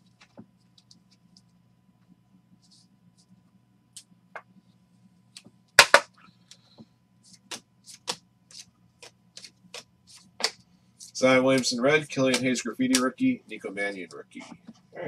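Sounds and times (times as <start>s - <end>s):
trading cards snapping and clicking: 7.5s - 10.6s, 11.5s - 13.2s.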